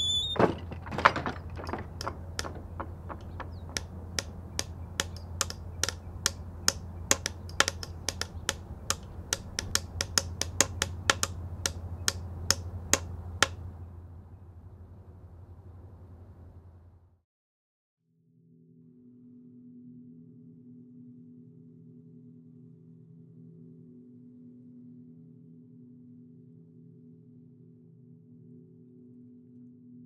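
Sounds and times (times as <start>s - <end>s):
knocks: 0.0s - 13.7s
sharp taps: 0.0s - 13.7s
constant low hum: 0.0s - 17.2s.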